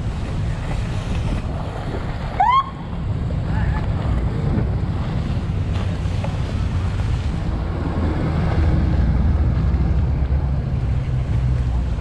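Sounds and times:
choppy water: 0:00.0 - 0:12.0
motorboat engines: 0:00.0 - 0:12.0
wind rumbling on microphone: 0:00.0 - 0:12.0.

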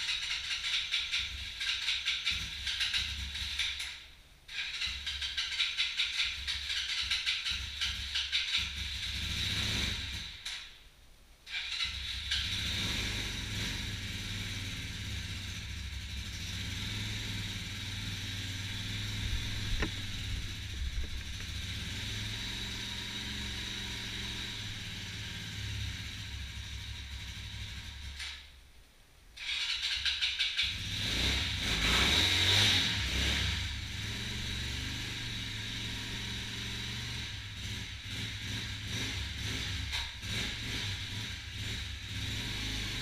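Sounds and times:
motorcycle engine idling: 0:00.0 - 0:10.4, 0:13.3 - 0:28.5, 0:33.5 - 0:43.0
sharp click: 0:19.5 - 0:20.4.

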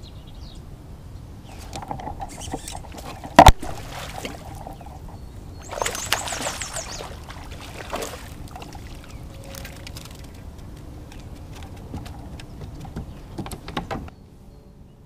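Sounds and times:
fish splashing at the surface: 0:02.4 - 0:10.5.

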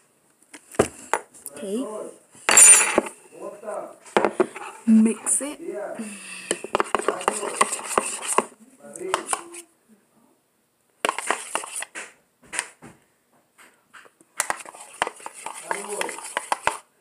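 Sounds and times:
spoon scraping a bowl: 0:06.5 - 0:09.6, 0:11.0 - 0:11.9, 0:14.4 - 0:16.9.

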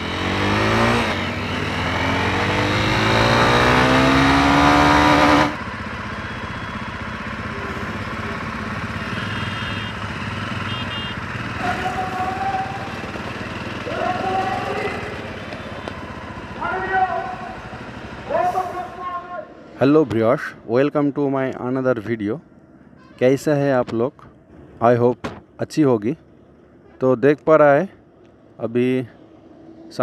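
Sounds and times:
motorcycle engine accelerating: 0:00.0 - 0:18.4
street traffic noise: 0:00.0 - 0:30.0.

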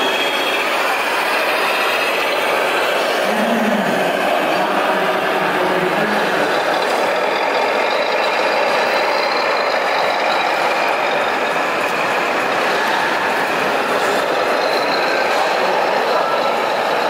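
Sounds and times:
hum of exhibition hall: 0:00.0 - 0:17.0
model truck motor running: 0:04.6 - 0:17.0.

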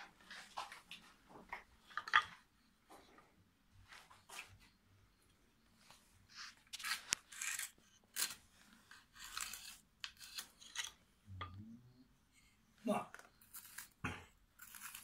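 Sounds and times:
steel blade scraping stone: 0:06.8 - 0:08.4, 0:09.0 - 0:11.0, 0:14.6 - 0:15.0.

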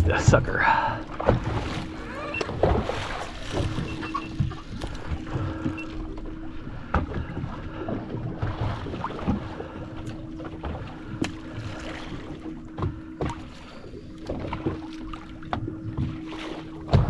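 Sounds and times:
low hum: 0:00.0 - 0:17.0
rumbling water: 0:00.0 - 0:17.0
knocks and clicks from hull: 0:01.1 - 0:11.6, 0:12.2 - 0:13.6, 0:14.2 - 0:17.0.

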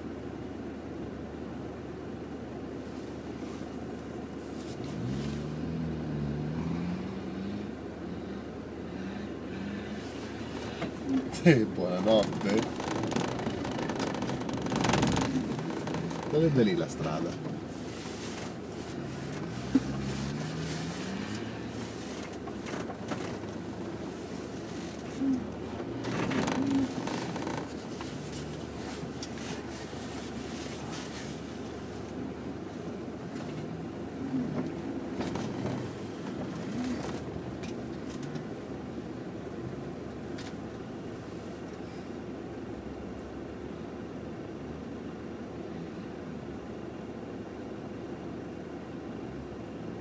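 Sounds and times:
steady engine hum: 0:00.0 - 0:50.0
engine revving: 0:04.6 - 0:17.5, 0:18.3 - 0:23.7, 0:24.6 - 0:31.4.

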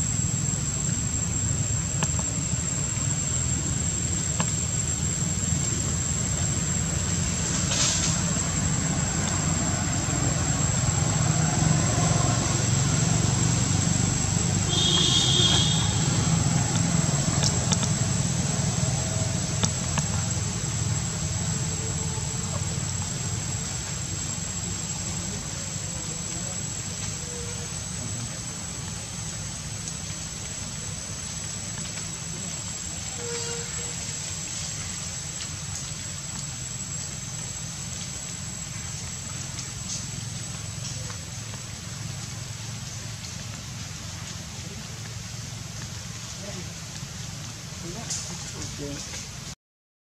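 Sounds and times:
high-pitched insect drone: 0:00.0 - 0:45.6
high-pitched whine: 0:00.0 - 0:49.3
engine low rumble: 0:00.0 - 0:49.6.

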